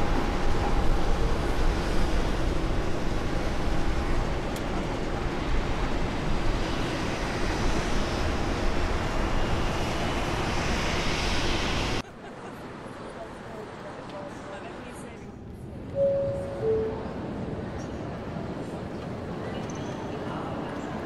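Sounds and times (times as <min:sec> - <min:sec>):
jet aircraft rushing noise: 0:00.0 - 0:12.0
faint high whine: 0:16.0 - 0:18.0.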